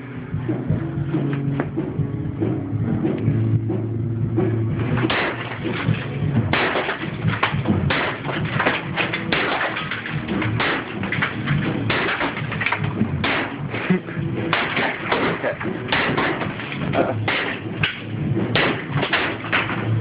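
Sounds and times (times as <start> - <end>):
steady low hum: 0.0 - 20.0
wall being broken: 4.8 - 20.0.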